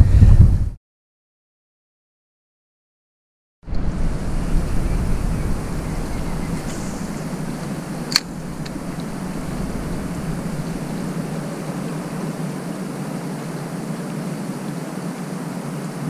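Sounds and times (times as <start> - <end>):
wind: 0.0 - 0.8, 3.6 - 16.0
flowing river water: 3.8 - 16.0
faint ticks: 6.6 - 9.2
sharp click: 8.1 - 9.1.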